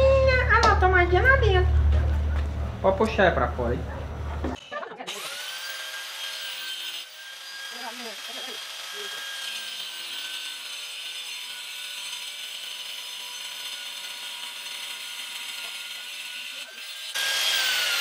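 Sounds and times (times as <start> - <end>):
stone cutting saw whining: 4.6 - 18.0.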